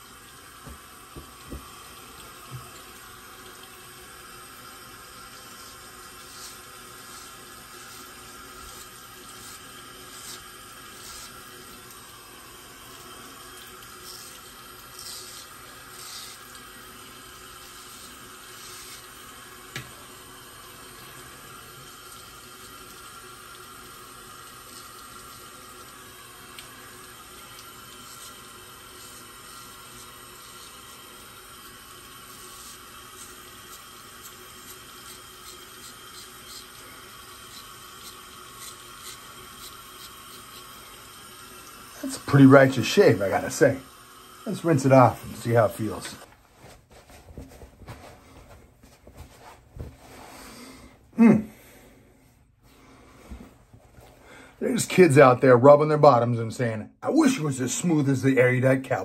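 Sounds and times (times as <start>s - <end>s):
tap running into sink: 0.6s - 2.9s
razor scraping stubble: 5.3s - 11.9s, 13.8s - 19.4s, 27.3s - 31.1s, 32.0s - 40.8s.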